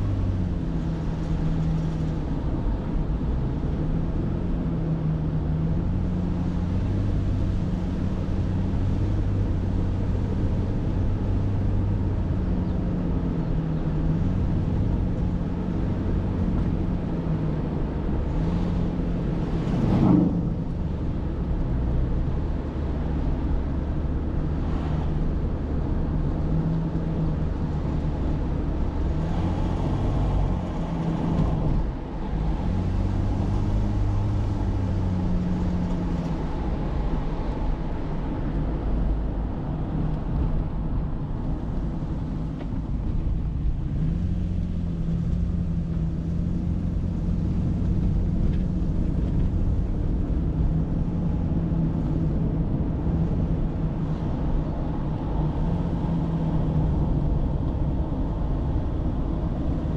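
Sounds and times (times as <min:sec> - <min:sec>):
car engine and road rumble: 0:00.0 - 0:59.9.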